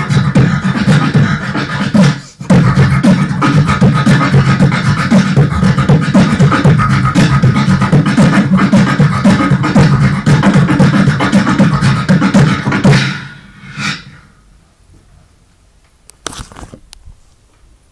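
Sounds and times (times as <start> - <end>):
beatboxing into a microphone: 0.0 - 14.2
steady low hum: 0.0 - 17.9.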